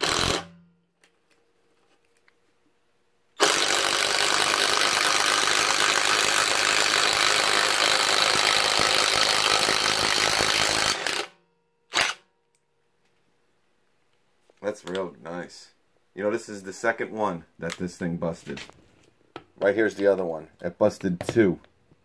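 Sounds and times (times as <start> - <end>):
impact driver hammering screw: 0.0 - 0.6, 3.4 - 12.2.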